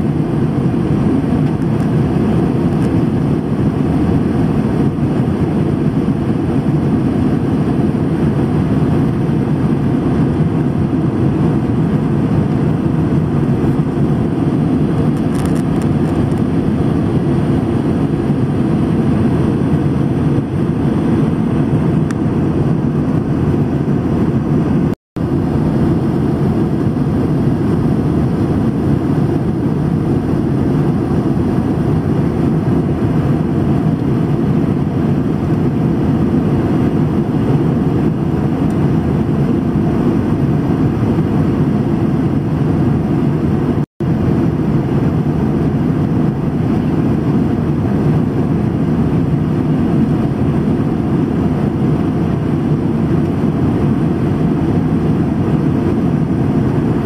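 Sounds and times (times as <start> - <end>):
airplane cabin drone: 0.0 - 57.0.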